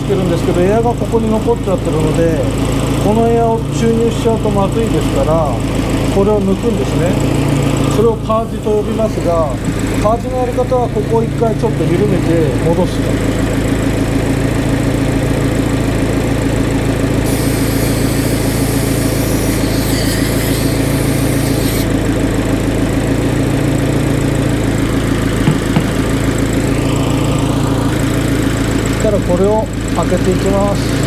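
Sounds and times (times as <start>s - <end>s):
car engine idling: 0.0s - 31.0s
gas hissing from hose fitting: 17.2s - 21.9s.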